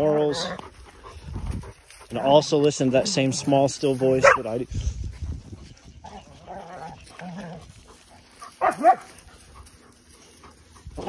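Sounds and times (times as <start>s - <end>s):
dog barking: 4.2s - 4.5s, 8.6s - 9.1s.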